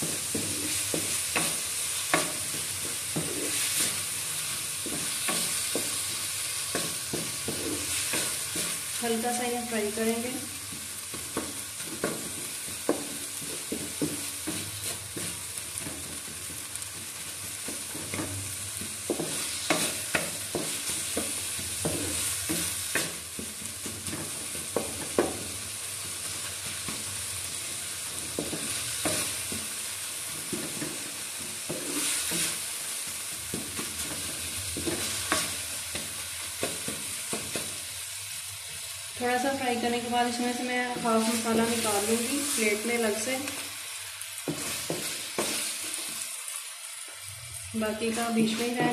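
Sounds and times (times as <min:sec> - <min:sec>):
wooden spatula scraping pan: 0:00.0 - 0:25.5, 0:30.4 - 0:32.8
vegetables sizzling in hot oil: 0:00.0 - 0:48.9.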